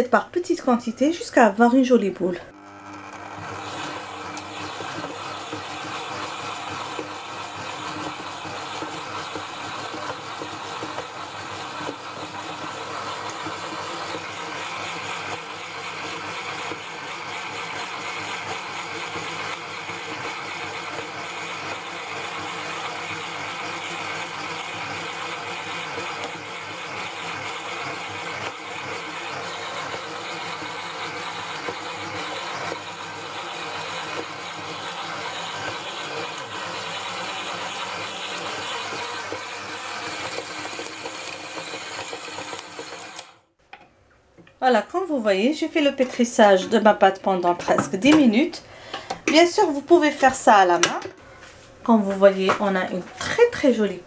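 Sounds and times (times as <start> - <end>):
stand mixer kneading dough: 2.5 - 43.4.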